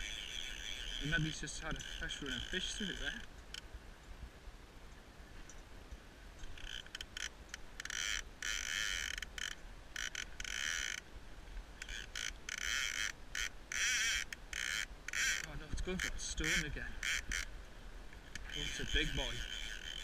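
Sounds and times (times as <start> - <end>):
fly reel ratchet buzzing: 0.0 - 3.6, 6.4 - 11.0, 11.8 - 17.5, 18.3 - 20.0.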